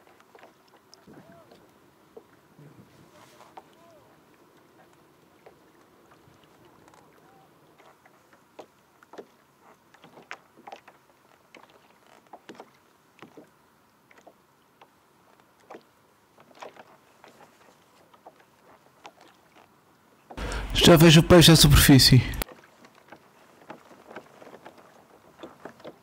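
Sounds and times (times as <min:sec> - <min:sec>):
waves lapping against kayak hull: 0:00.0 - 0:20.8, 0:22.4 - 0:26.0.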